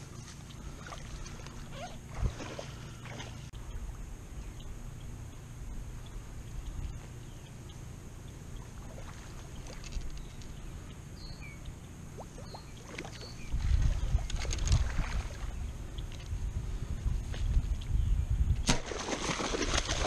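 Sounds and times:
footsteps sloshing in water: 0:00.0 - 0:03.5
steady low rumble: 0:00.0 - 0:20.0.

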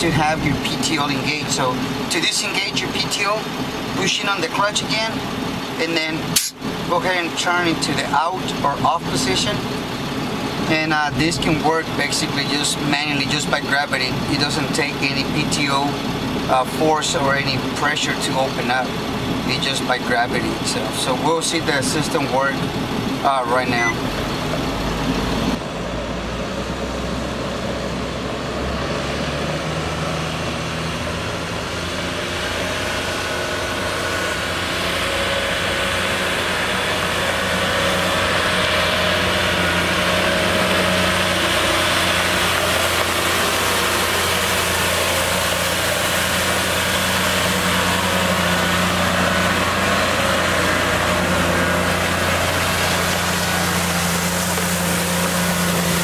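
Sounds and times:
diesel truck engine running: 0:00.0 - 0:56.0
water spraying onto gravel: 0:51.8 - 0:56.0.

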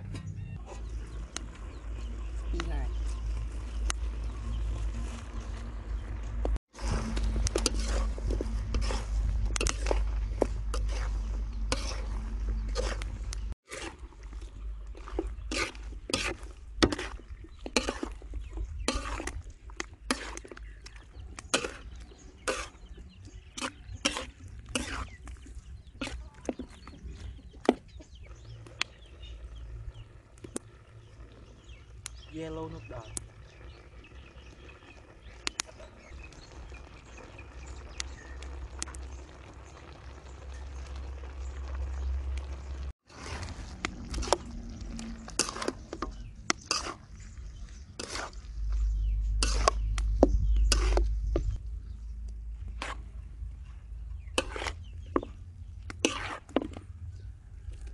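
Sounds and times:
low rumble: 0:00.0 - 0:13.6, 0:37.8 - 0:55.8
metal spatula scraping a wok: 0:06.7 - 0:14.2, 0:14.9 - 0:26.8, 0:43.1 - 0:51.6, 0:52.6 - 0:53.2, 0:54.2 - 0:56.8
food fizzing in wok: 0:33.3 - 0:43.8.

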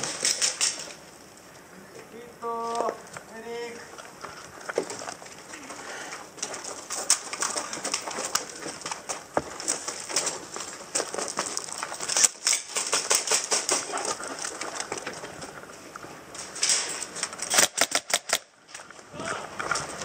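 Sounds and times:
airsoft guns firing: 0:17.4 - 0:18.5.

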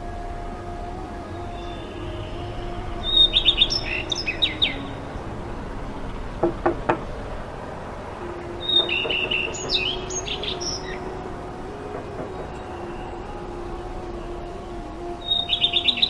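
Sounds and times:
birds chirping: 0:00.1 - 0:07.4, 0:08.0 - 0:16.0
knuckles knocking on wooden door: 0:06.4 - 0:07.1.

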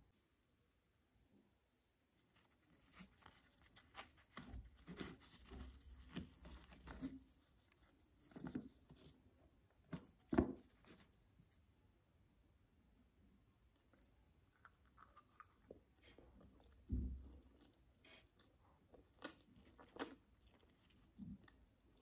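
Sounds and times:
bread tearing soft crackles: 0:02.3 - 0:09.2.

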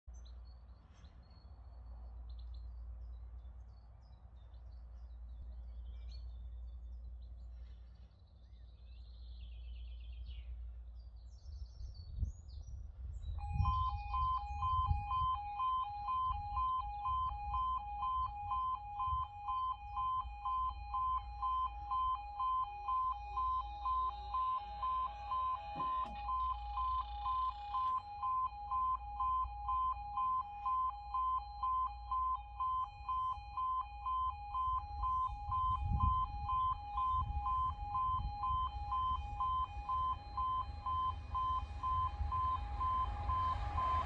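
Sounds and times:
birds chirping: 0:00.1 - 0:44.0
low rumble: 0:09.8 - 0:44.0
pulsing two-tone crossing alarm: 0:13.4 - 0:44.0.

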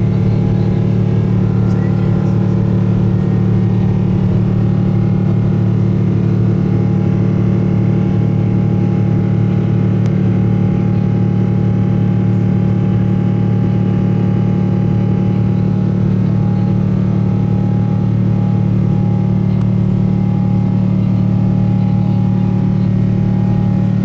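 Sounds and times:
jet engine drone in cabin: 0:00.0 - 0:24.0
steady engine tones: 0:00.0 - 0:24.0.

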